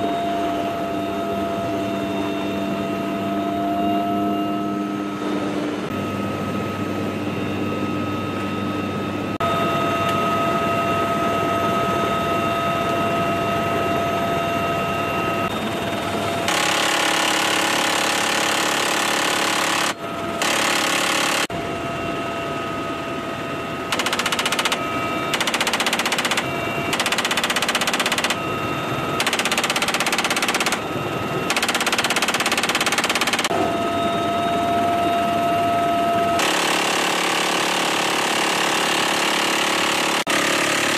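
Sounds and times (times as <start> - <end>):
helicopter turbine and rotor noise: 0.0 - 40.9
minigun firing bursts: 16.5 - 21.5, 23.9 - 28.4, 29.2 - 30.9, 31.5 - 33.5, 36.4 - 40.9.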